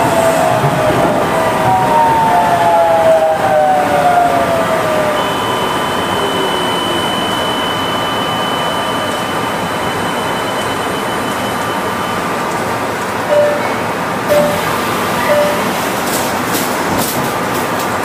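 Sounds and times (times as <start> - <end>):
train rolling noise: 0.0 - 18.0
thin high tone: 13.3 - 15.8.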